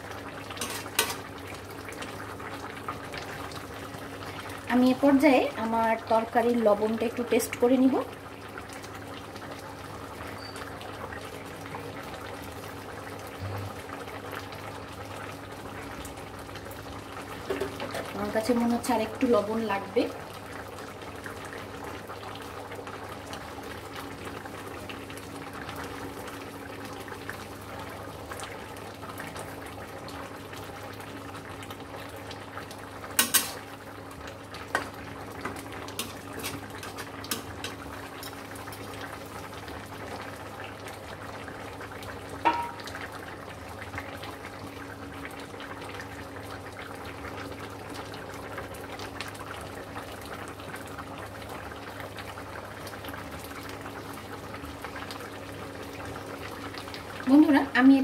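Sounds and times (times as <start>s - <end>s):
curry simmering and bubbling: 0.0s - 58.0s
low hum: 13.4s - 13.8s
spatula knocking metal pan: 42.5s - 42.9s.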